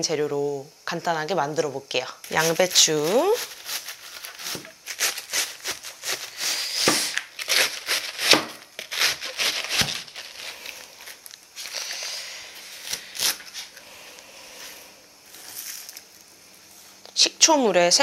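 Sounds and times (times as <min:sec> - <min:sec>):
knife crunching through cabbage: 0:02.2 - 0:12.0, 0:12.6 - 0:13.8.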